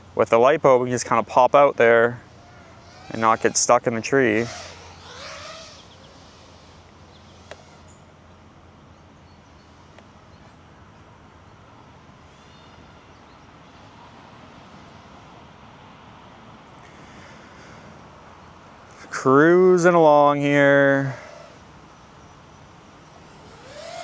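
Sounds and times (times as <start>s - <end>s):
low hum and hiss: 0.0s - 24.0s
faint bird chirps: 4.6s - 15.3s.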